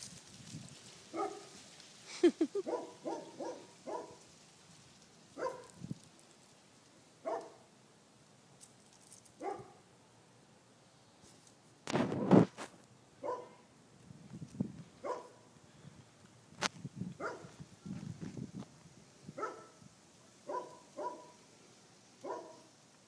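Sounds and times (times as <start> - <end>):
dog barking: 1.1 - 1.6, 2.6 - 4.2, 5.4 - 5.8, 7.2 - 7.6, 9.4 - 9.8, 13.2 - 13.6, 15.0 - 15.4, 17.2 - 17.5, 19.4 - 19.8, 20.4 - 21.4, 22.2 - 22.7.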